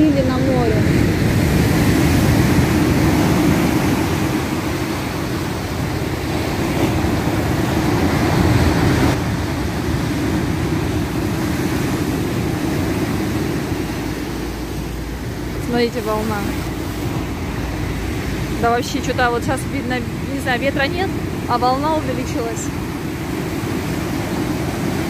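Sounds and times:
storm waves breaking: 0.0 - 25.0.

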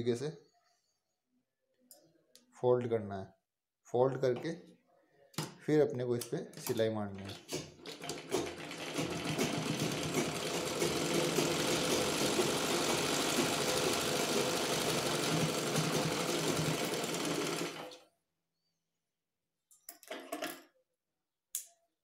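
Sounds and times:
sewing machine running: 7.8 - 18.0.

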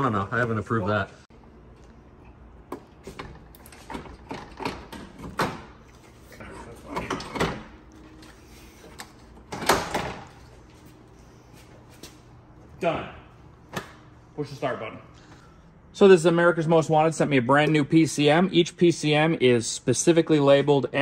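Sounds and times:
parts clicking and knocking: 2.7 - 5.7.

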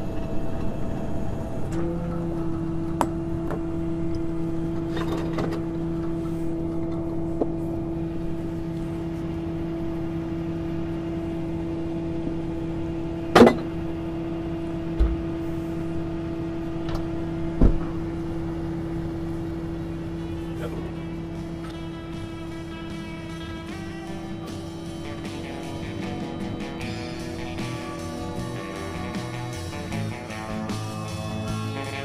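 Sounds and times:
truck engine humming: 0.0 - 32.0.

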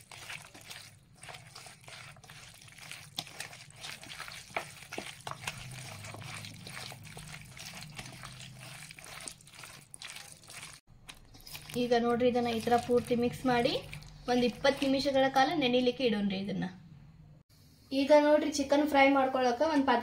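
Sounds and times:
wet squelches of kneading meat: 0.0 - 15.5.

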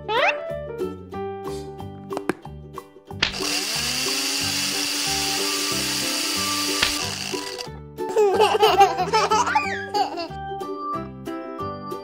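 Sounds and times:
children's background music: 0.0 - 12.0
electric blender whirring: 3.3 - 7.7.

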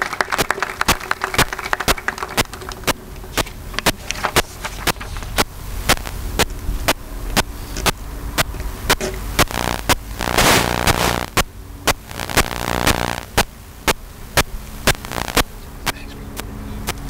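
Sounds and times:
sharp clicks: 0.4 - 6.6, 7.3 - 17.0
low hum: 5.4 - 15.6
faint voices: 15.1 - 17.0.

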